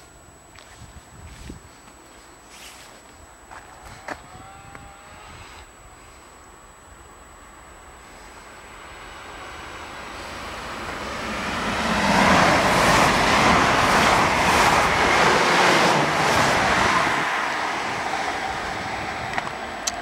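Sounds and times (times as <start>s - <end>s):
train passing at speed: 6.8s - 20.0s.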